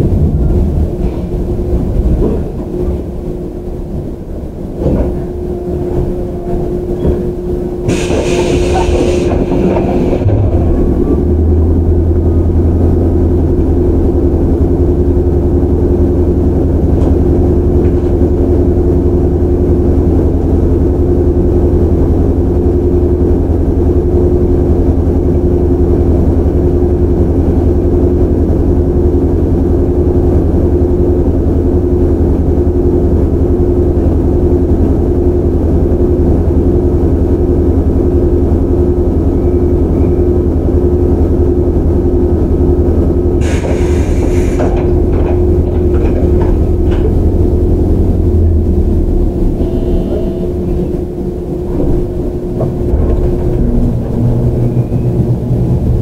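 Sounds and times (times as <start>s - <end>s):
electric train motor hum: 0.0s - 56.0s
air hissing burst: 7.9s - 10.3s, 43.4s - 44.7s.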